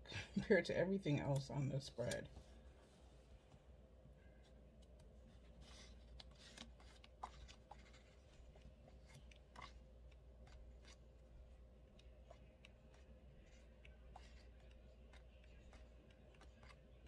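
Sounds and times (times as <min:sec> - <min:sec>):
paper pages rustling: 0:05.2 - 0:09.8, 0:12.0 - 0:17.0.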